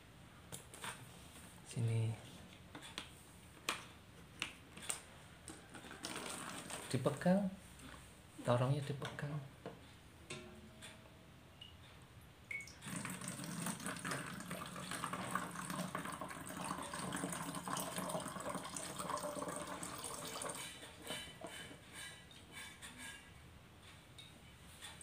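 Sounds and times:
water poured through a funnel: 0:06.0 - 0:07.0, 0:12.6 - 0:20.8.

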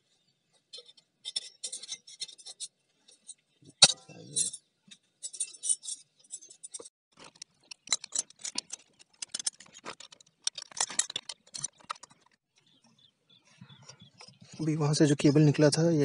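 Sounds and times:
metallic clicking of hand tools: 0:05.2 - 0:12.2.

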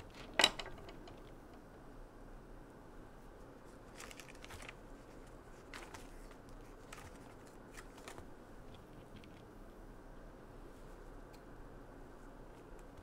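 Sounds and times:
low room hum: 0:00.0 - 0:13.0
plastic bag crinkling: 0:03.8 - 0:09.4.

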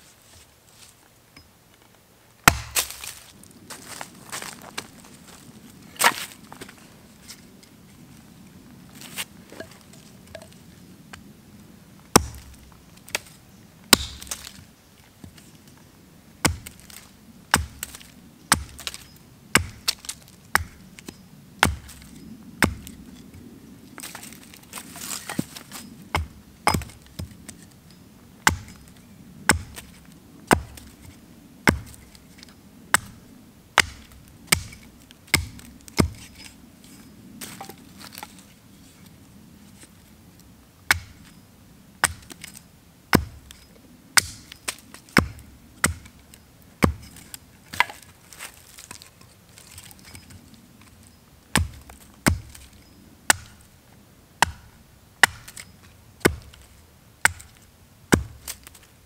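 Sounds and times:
axe chopping wood: 0:02.4 - 0:03.2, 0:12.1 - 0:13.3, 0:13.9 - 0:14.6, 0:16.4 - 0:19.0, 0:19.6 - 0:23.0, 0:24.8 - 0:27.6, 0:28.4 - 0:28.9, 0:29.5 - 0:31.1, 0:31.7 - 0:32.1, 0:33.8 - 0:36.4, 0:40.9 - 0:41.2, 0:42.0 - 0:42.5, 0:43.1 - 0:43.6, 0:44.2 - 0:46.2, 0:46.8 - 0:48.2, 0:51.5 - 0:52.7, 0:53.3 - 0:53.6, 0:54.4 - 0:55.6, 0:56.2 - 0:56.6, 0:57.2 - 0:58.8.

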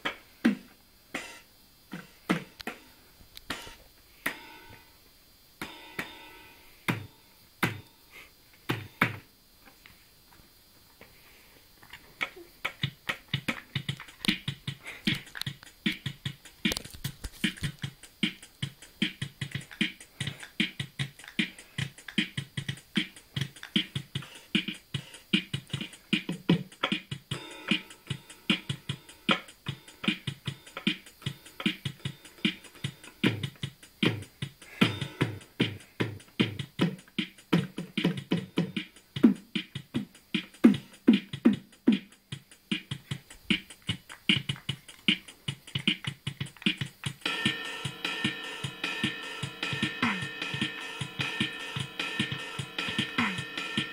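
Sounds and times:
electronic drum machine hits: 0:05.6 - 0:07.9, 0:17.4 - 0:53.9.

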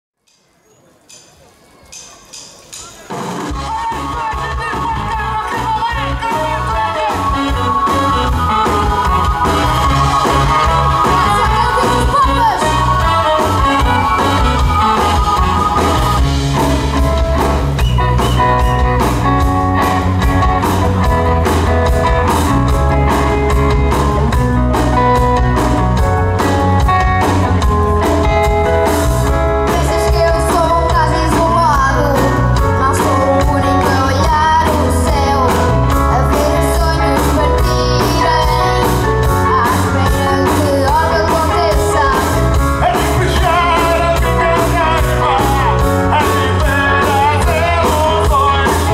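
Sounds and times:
keyboard: 0:00.2 - 0:48.9
steady drum beat: 0:02.3 - 0:31.8, 0:37.8 - 0:48.9
bass: 0:03.1 - 0:48.9
electric guitars: 0:03.3 - 0:48.9
horn section: 0:03.5 - 0:23.6
person singing into microphone: 0:03.6 - 0:16.2, 0:29.6 - 0:48.9.

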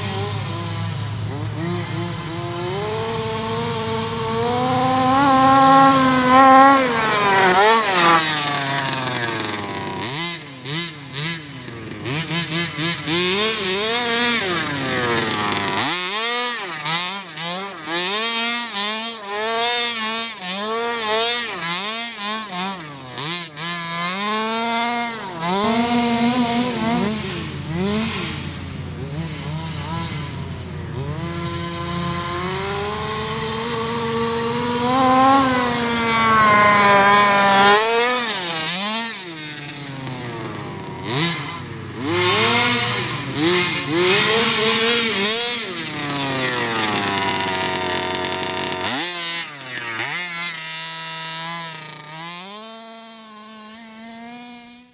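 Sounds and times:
small engine revving: 0:00.0 - 0:54.9.

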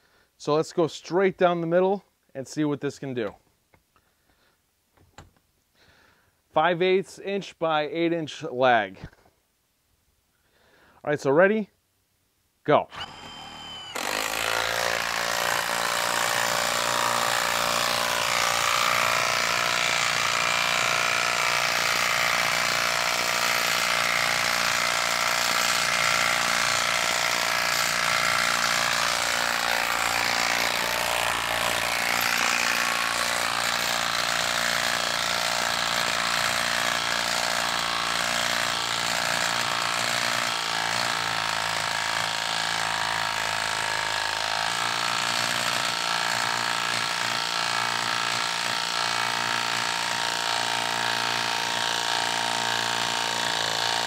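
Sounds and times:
impact wrench hammering: 0:13.0 - 0:54.0.

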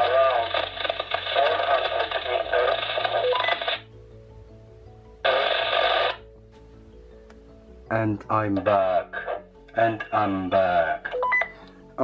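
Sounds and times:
garbled voice over walkie-talkie: 0:00.0 - 0:03.6
radio noise burst: 0:00.0 - 0:03.8, 0:05.3 - 0:06.2.

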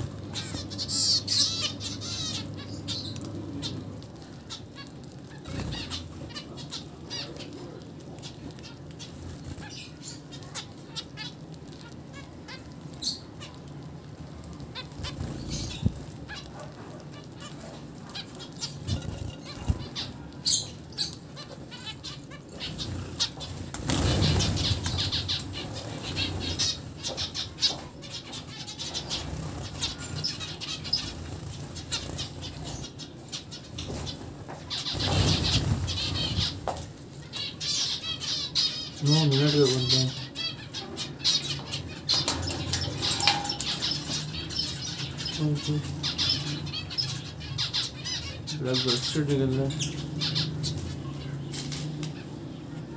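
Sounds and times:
finches fluttering wings: 0:14.4 - 0:37.0.

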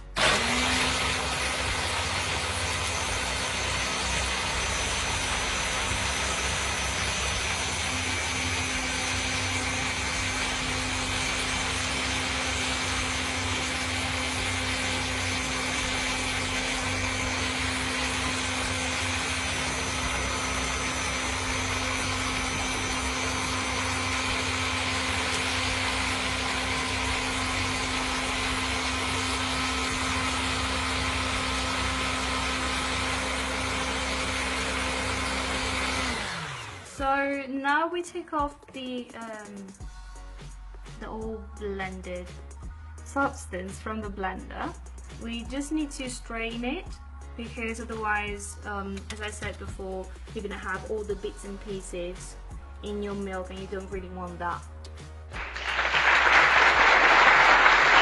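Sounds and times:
electric blender humming: 0:00.0 - 0:37.3, 0:54.8 - 0:58.0.

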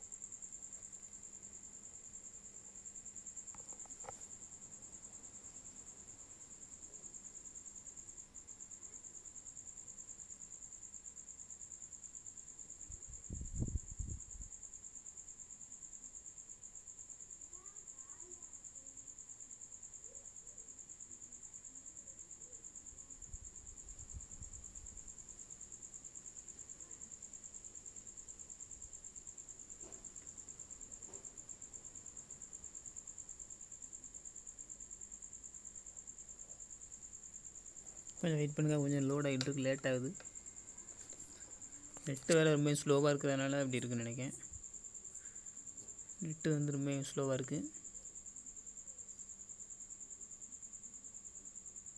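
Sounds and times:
cricket trilling: 0:00.0 - 0:51.9.

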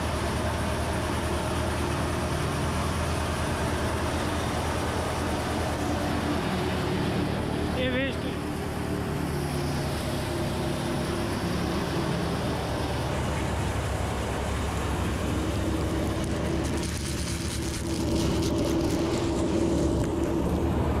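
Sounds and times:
threshing machine running: 0:00.0 - 0:21.0
tractor engine hum: 0:00.0 - 0:21.0
seeds pouring into tub: 0:16.1 - 0:20.4.

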